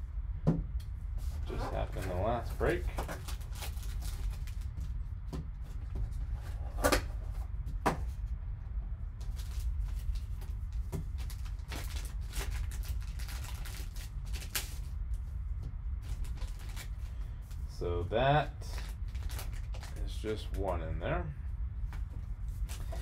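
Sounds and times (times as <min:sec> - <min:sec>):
steady low hum: 0:00.0 - 0:23.0
plastic wrapping crinkling: 0:01.4 - 0:05.0, 0:09.2 - 0:15.0, 0:16.0 - 0:17.6, 0:18.7 - 0:20.0.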